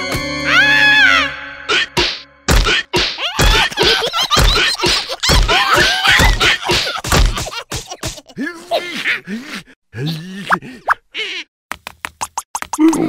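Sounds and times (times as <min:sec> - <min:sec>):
heavy cartoon thumps and whacks: 0:01.9 - 0:08.3
cartoon characters squealing: 0:05.1 - 0:06.8, 0:11.2 - 0:11.5.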